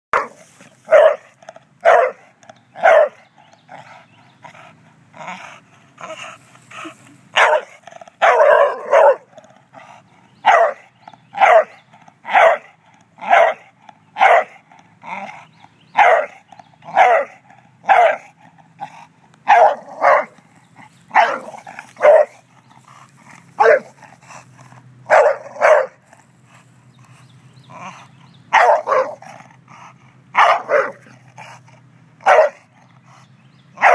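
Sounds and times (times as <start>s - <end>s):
dog barking: 0.1s - 3.3s, 7.4s - 9.3s, 10.4s - 14.6s, 16.0s - 18.3s, 19.5s - 20.4s, 21.1s - 22.4s, 23.6s - 24.0s, 25.1s - 26.0s, 28.5s - 29.3s, 30.4s - 31.1s, 32.2s - 32.6s.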